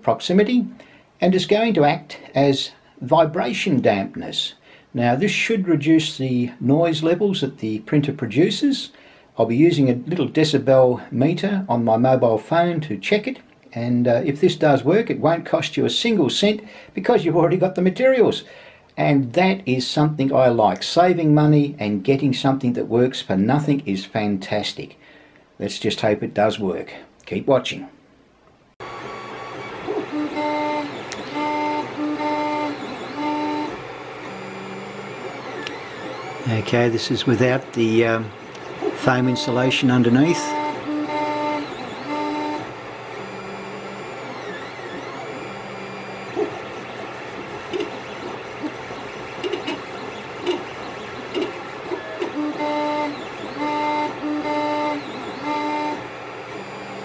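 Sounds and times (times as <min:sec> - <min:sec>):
steady hum: 0:28.8 - 0:57.0
stepper motor whine: 0:28.8 - 0:57.0.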